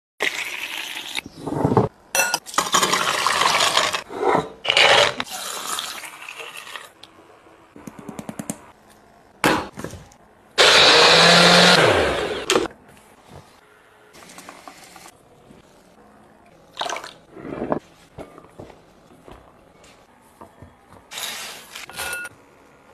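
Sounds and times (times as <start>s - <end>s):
blender grinding: 10.6s - 12.7s.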